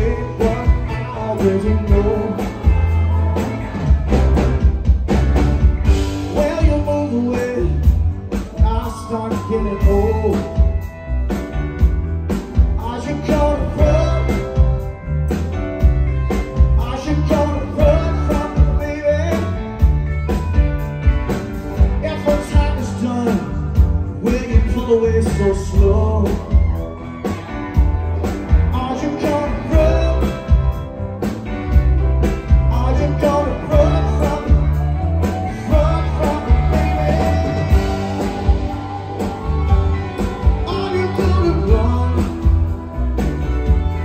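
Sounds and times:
live rock and roll band: 0:00.0 - 0:44.0.

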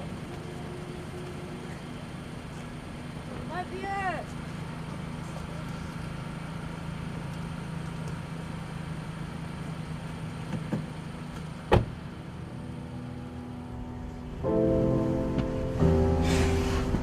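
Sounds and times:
car engine idling: 0:00.0 - 0:17.0
car door slamming: 0:11.6 - 0:12.0.

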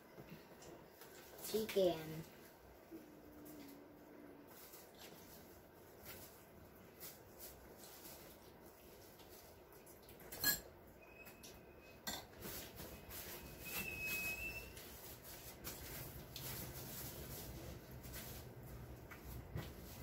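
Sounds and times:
dishes clinking: 0:10.3 - 0:10.7, 0:12.0 - 0:12.4.

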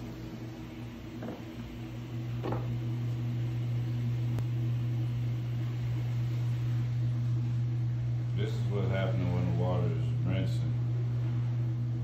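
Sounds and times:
washing machine humming: 0:00.0 - 0:12.0.

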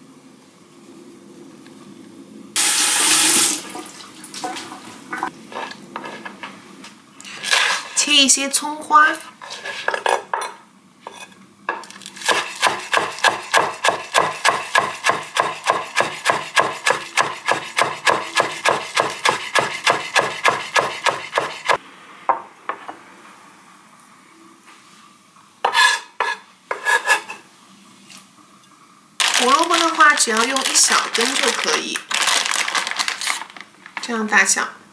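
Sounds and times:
knife chopping on wooden board: 0:12.2 - 0:21.8.

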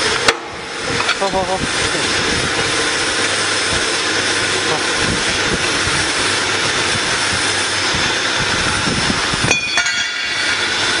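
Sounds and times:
electric motor running: 0:00.0 - 0:09.5.

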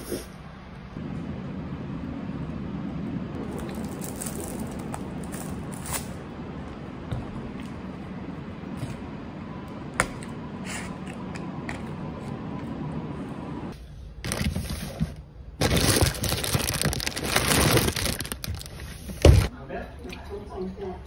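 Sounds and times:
plastic packets crinkling: 0:15.6 - 0:19.5.

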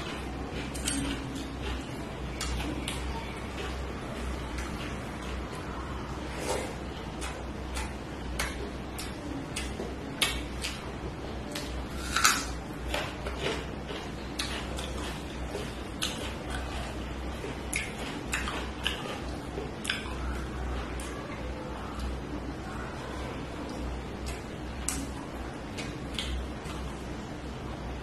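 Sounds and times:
chewing and lip smacks: 0:00.0 - 0:03.8, 0:07.2 - 0:21.3, 0:23.6 - 0:27.0
low steady hum: 0:00.0 - 0:28.0.

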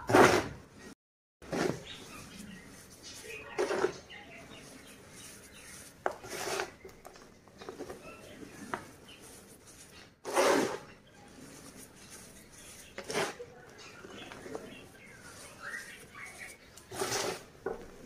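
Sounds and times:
hands crunching chalk powder: 0:01.8 - 0:06.9, 0:11.2 - 0:17.5.

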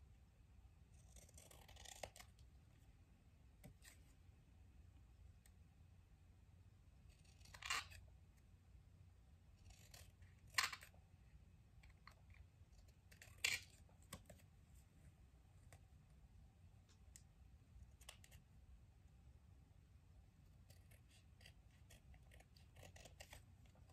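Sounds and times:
scissors snipping paper: 0:01.0 - 0:02.4, 0:07.1 - 0:08.0, 0:09.6 - 0:11.0, 0:11.8 - 0:14.4, 0:20.5 - 0:23.9.

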